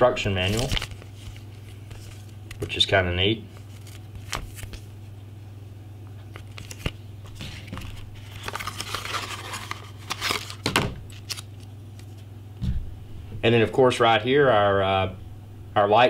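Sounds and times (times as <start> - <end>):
paper and cardboard rustling: 0.2 - 4.9, 6.3 - 12.2.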